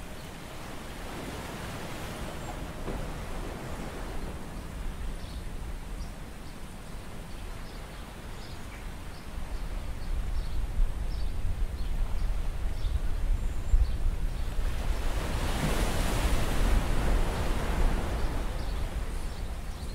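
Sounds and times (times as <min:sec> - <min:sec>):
surf washing on rocks: 0:00.0 - 0:06.4, 0:14.5 - 0:19.7
wind noise on microphone: 0:08.8 - 0:19.9.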